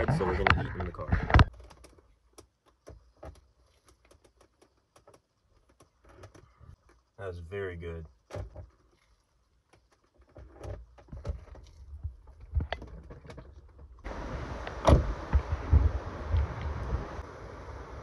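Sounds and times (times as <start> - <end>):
faint clicks and rustles: 0.0 - 7.2, 8.0 - 15.6
low handling thumps: 14.1 - 17.2
wind on microphone: 14.1 - 18.0.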